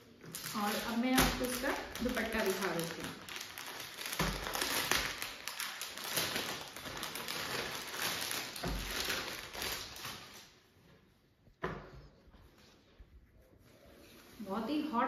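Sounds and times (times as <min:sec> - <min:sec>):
plastic packet crinkling: 0:00.2 - 0:10.6.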